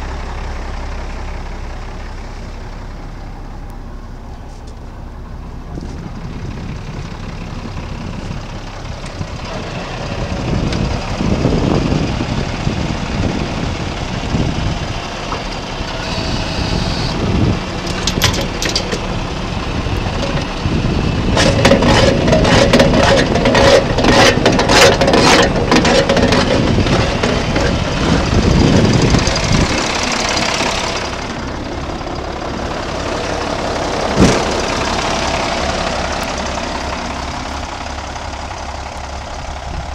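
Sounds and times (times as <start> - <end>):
diesel truck engine idling: 0.0 - 39.9
wind noise on microphone: 5.6 - 31.0.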